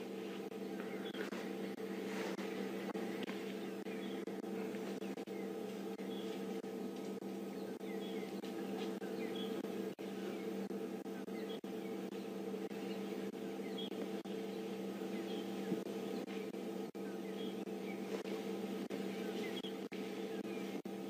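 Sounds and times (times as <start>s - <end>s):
low hum of held tones: 0.0s - 21.0s
bird chirps: 0.6s - 1.6s, 3.3s - 6.5s, 7.5s - 18.3s, 18.9s - 20.8s.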